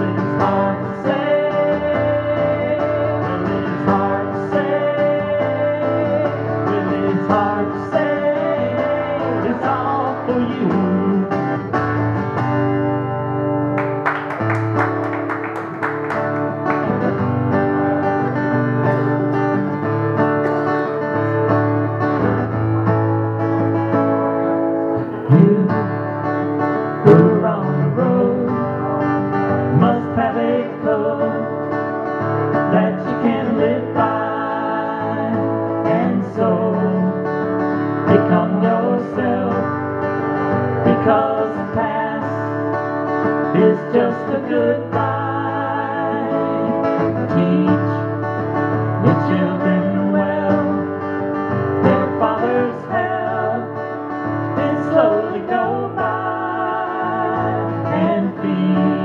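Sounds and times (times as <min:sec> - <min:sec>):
person singing: 0:00.0 - 0:11.5, 0:26.8 - 0:31.7, 0:32.5 - 0:37.3, 0:38.0 - 0:39.8, 0:40.8 - 0:42.7, 0:43.3 - 0:48.2, 0:49.0 - 0:51.1, 0:51.8 - 0:59.0
guitar playing: 0:00.0 - 0:59.0.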